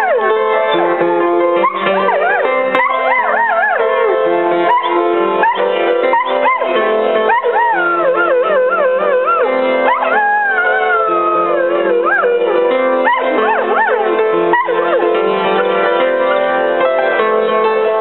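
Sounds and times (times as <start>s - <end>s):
dog howling: 0.0s - 1.0s, 1.6s - 15.8s
steady held chords: 0.0s - 18.0s.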